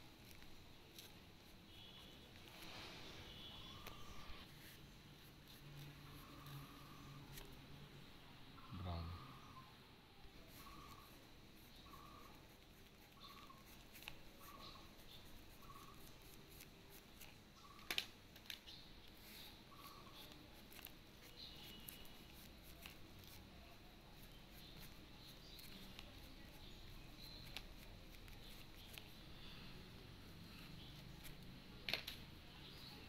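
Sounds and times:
oil pastel scratching paper: 0.0s - 7.6s, 10.4s - 17.9s, 19.0s - 29.4s.

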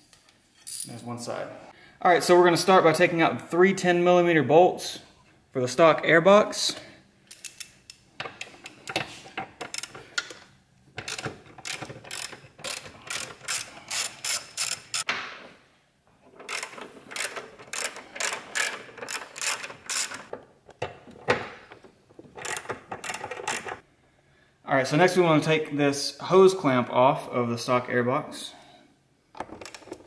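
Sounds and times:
ratchet wrench clicking: 11.0s - 15.0s, 16.5s - 20.3s.

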